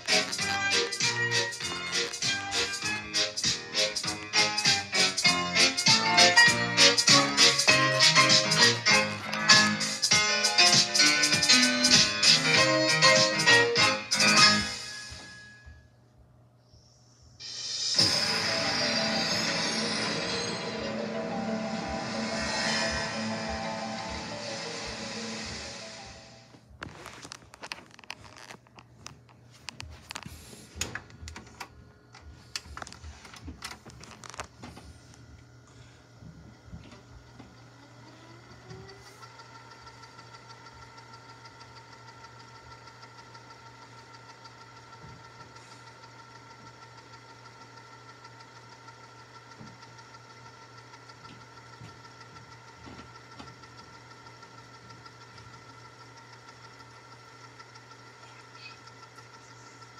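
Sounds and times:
tape machine whirring: 0.0s - 15.6s, 17.4s - 29.1s, 29.7s - 59.9s
phone handling clicks and rustles: 26.8s - 34.8s.

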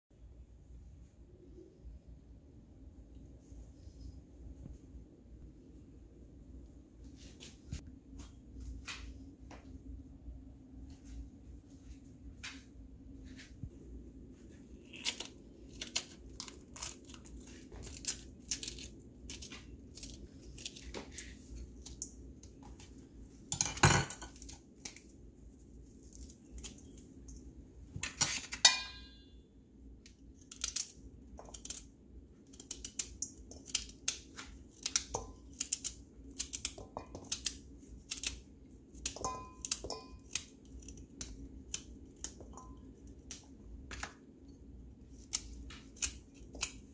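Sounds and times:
metal bowl ringing: 28.6s - 29.5s, 39.2s - 40.3s
knife slicing carrot: 45.1s - 46.9s.

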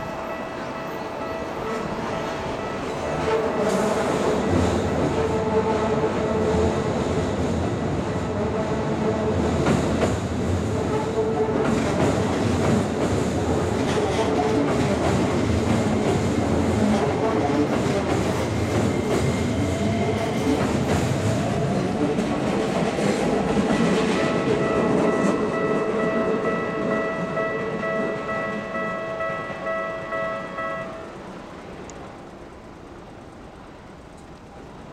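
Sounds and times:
crossing warning bell ringing: 0.0s - 5.4s, 23.6s - 31.5s
train rumbling over bridge: 0.0s - 34.9s.

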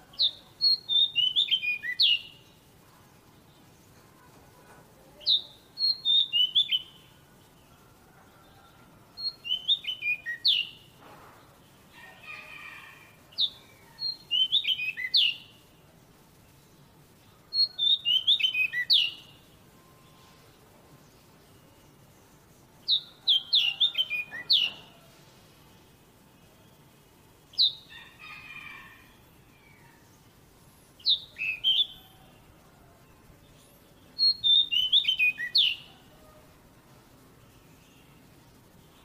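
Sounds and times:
magpie-robin singing: 0.0s - 2.7s, 5.1s - 7.2s, 9.1s - 10.9s, 12.4s - 15.7s, 17.4s - 19.6s, 22.8s - 25.1s, 27.4s - 28.9s, 31.0s - 32.4s, 33.5s - 36.4s.

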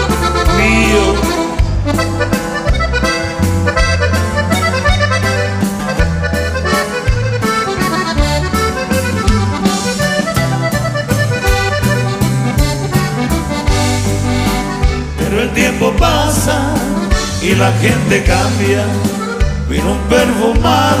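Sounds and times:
bass line: 0.0s - 21.0s
button accordion melody: 0.0s - 21.0s
steady beat: 0.1s - 15.0s.

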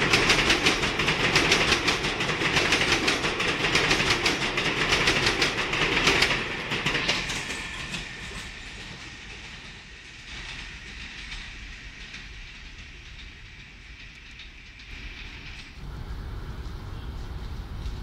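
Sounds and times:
train wheels clattering over rails: 0.0s - 18.0s.

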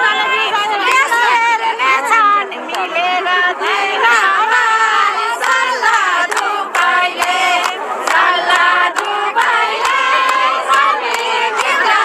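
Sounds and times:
crowd singing and chanting: 0.0s - 12.0s
hand claps: 5.4s - 12.0s.

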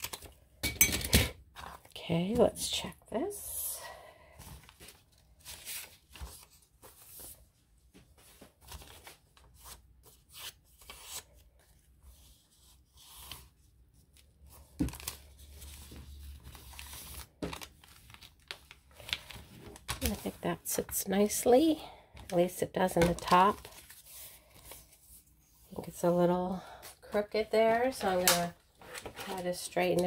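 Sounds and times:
paper rustling and scraping: 14.5s - 20.4s.

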